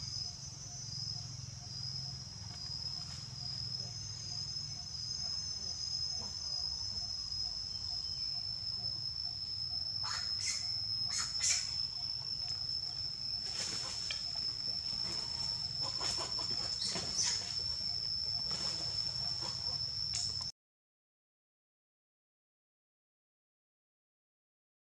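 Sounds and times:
high-pitched insect drone: 0:00.0 - 0:20.5
rustling in dry leaves: 0:13.4 - 0:14.1.

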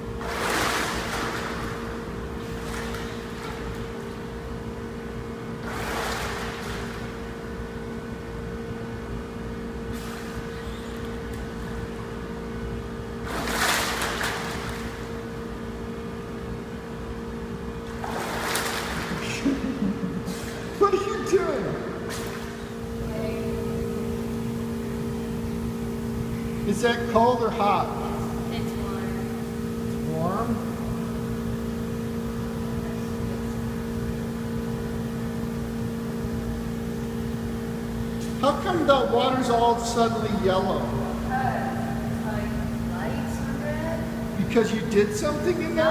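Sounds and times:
churning bubbling water: 0:00.0 - 0:04.6, 0:05.4 - 0:07.9
swimming pool hall hum: 0:00.0 - 0:45.9
water splashing: 0:00.2 - 0:03.9, 0:05.6 - 0:07.3, 0:13.2 - 0:15.2, 0:17.8 - 0:19.6.

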